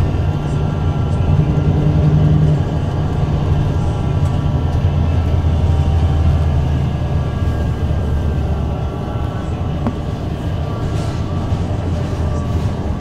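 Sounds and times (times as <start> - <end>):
bus engine low drone: 0.0 - 13.0.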